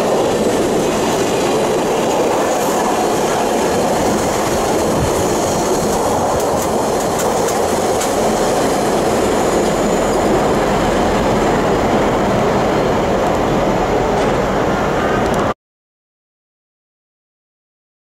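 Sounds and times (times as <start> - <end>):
wheels clicking over rail joints: 0.0 - 10.5
freight train rolling past: 0.0 - 15.5.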